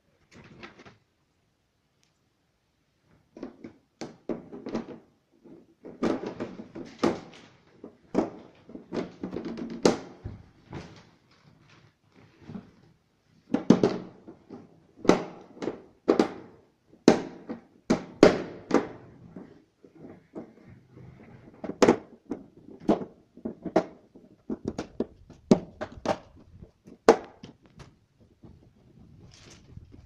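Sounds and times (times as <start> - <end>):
plastic casing knocks and clicks: 21.6 - 28.6.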